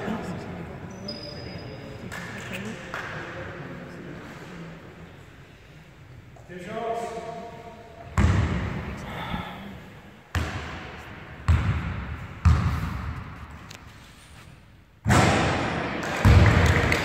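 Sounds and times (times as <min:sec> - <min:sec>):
basketball bouncing on wooden floor: 0:11.5 - 0:13.2.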